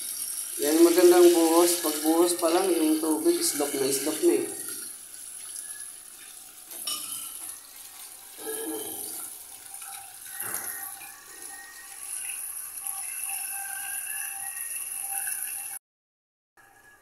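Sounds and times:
water pouring into drain: 0.0 - 15.7
water gurgling down pipe: 8.2 - 14.2.

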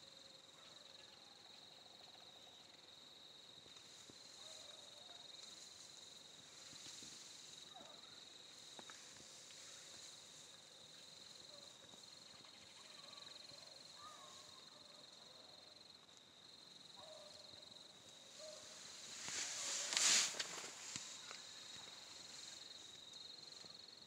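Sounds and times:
insect trilling chorus: 3.9 - 15.2, 18.0 - 24.0.

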